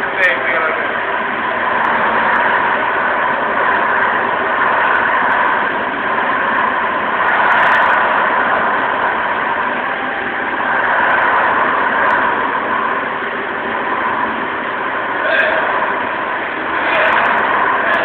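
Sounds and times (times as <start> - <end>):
floor machine droning: 0.0 - 18.0.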